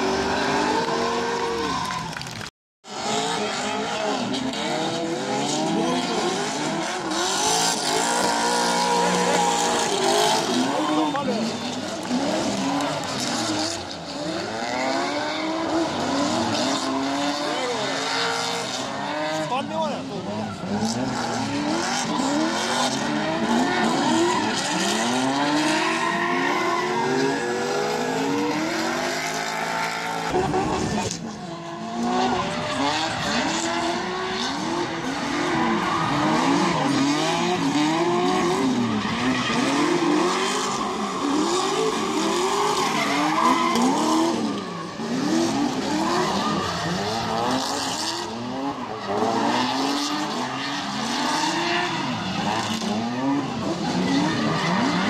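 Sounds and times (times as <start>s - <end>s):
car engines revving: 0.0s - 55.0s
tyres screeching: 34.0s - 47.4s.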